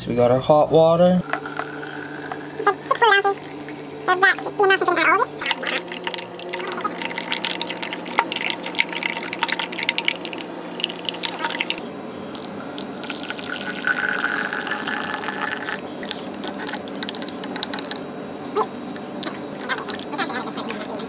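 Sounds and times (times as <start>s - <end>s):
water pouring into jar: 1.2s - 3.8s, 5.4s - 11.8s, 12.4s - 18.0s.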